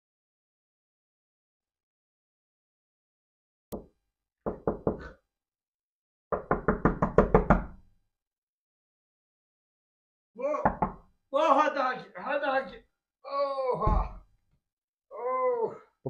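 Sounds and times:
knocking on a door: 3.8s - 5.1s, 6.3s - 7.8s, 10.6s - 11.1s.

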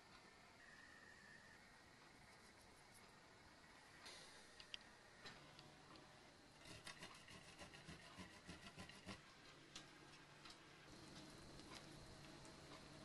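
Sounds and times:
cheese grating on metal grater: 6.6s - 9.2s.

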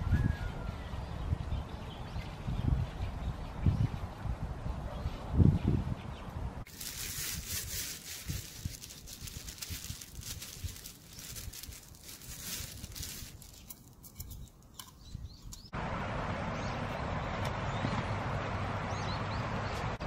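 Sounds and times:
plastic glove crinkling: 6.7s - 14.7s.

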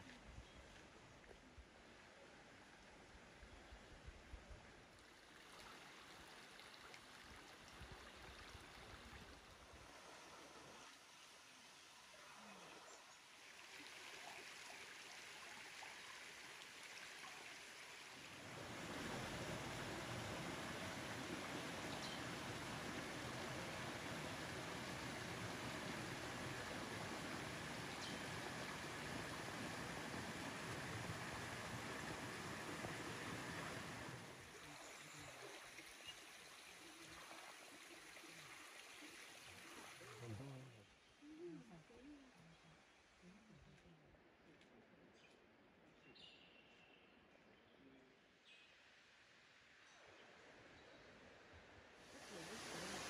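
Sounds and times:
creek running over rocks: 0.0s - 41.1s, 52.0s - 53.0s
rushing water: 4.9s - 40.8s, 52.0s - 53.0s.

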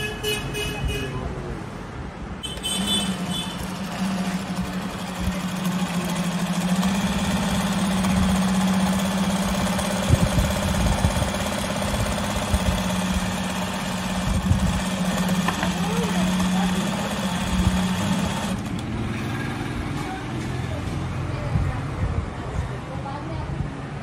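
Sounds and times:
sewing machine running: 2.5s - 19.7s.

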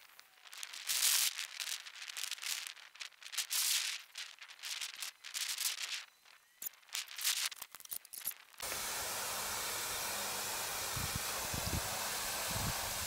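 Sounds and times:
hose nozzle spraying water: 8.6s - 13.0s.

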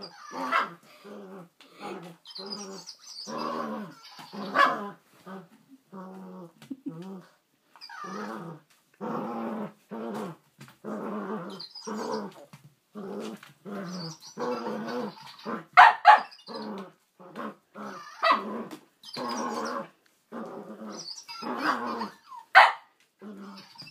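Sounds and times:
dog play-growling: 0.0s - 15.8s, 16.4s - 22.3s, 23.2s - 23.9s
dog barking sharply: 15.8s - 16.2s, 22.6s - 22.8s.

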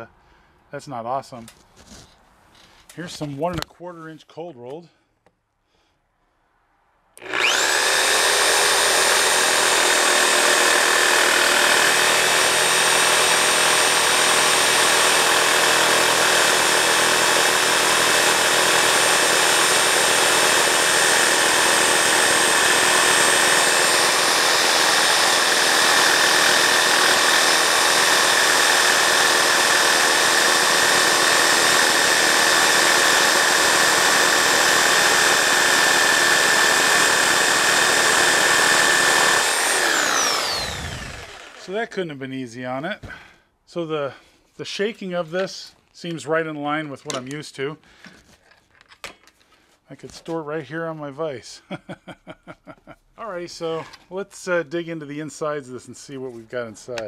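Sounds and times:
high motor whine: 7.2s - 9.8s, 36.8s - 41.7s
reciprocating saw cutting steel: 7.2s - 41.9s.

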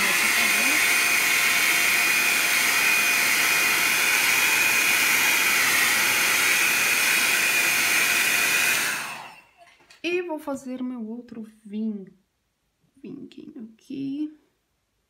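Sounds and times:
hair dryer running: 0.0s - 9.6s.

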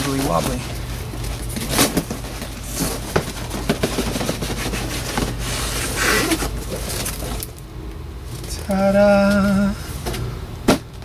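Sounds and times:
cardboard rubbing and crinkling: 0.0s - 7.4s.

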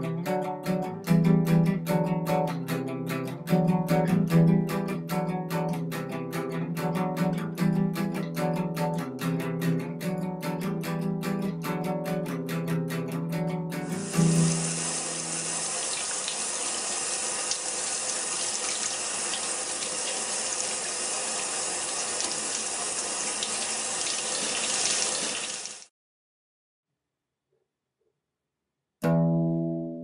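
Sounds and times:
guitar chord: 0.0s - 15.4s, 29.0s - 30.0s
water running from tap: 13.8s - 25.9s.

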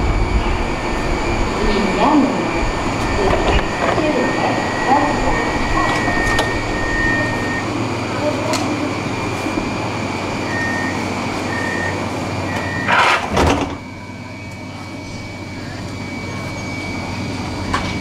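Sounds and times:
sliding doors shutting: 0.0s - 7.6s, 10.4s - 13.9s
tram background hum: 0.0s - 18.0s
short warning beeps: 2.1s - 7.7s, 10.4s - 13.1s.

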